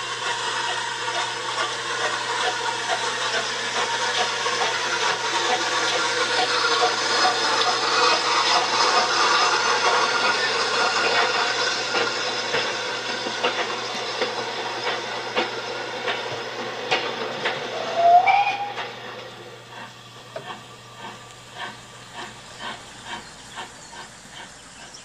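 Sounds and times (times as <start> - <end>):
locomotive chuffing beat: 0.0 - 25.0
steam hissing: 0.0 - 25.0
steam whistle blast: 17.7 - 19.1.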